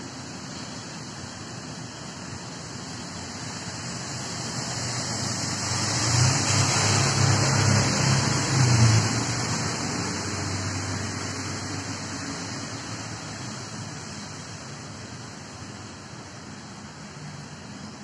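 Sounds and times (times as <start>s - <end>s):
vehicle passing by: 4.8s - 13.0s.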